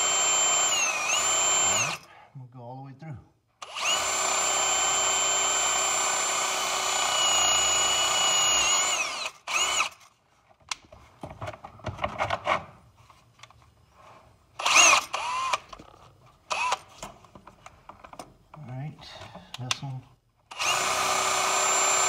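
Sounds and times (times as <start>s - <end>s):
electric drill boring plastic: 0.0s - 2.1s, 3.6s - 10.0s, 14.6s - 15.7s, 16.5s - 16.8s, 20.5s - 22.0s.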